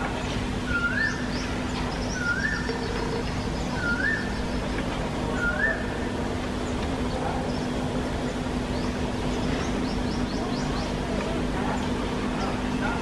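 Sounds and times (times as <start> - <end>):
low steady hum: 0.0 - 13.0
bird whistled call: 0.6 - 4.6, 5.3 - 6.1.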